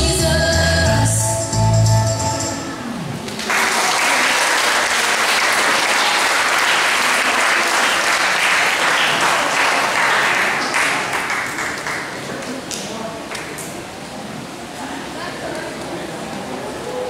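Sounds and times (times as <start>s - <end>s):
audience applauding: 3.2s - 13.5s.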